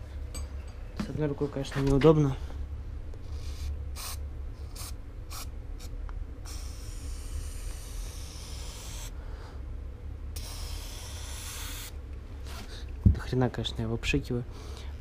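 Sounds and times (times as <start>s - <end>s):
aerosol can spraying: 6.5s - 9.1s, 10.4s - 11.9s.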